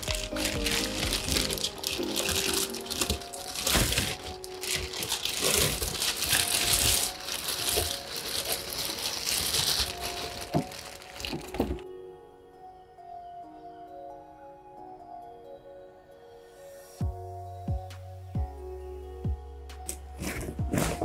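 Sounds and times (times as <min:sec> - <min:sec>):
plastic bag crinkling: 0:00.0 - 0:11.8, 0:20.2 - 0:21.0
background music: 0:00.0 - 0:21.0.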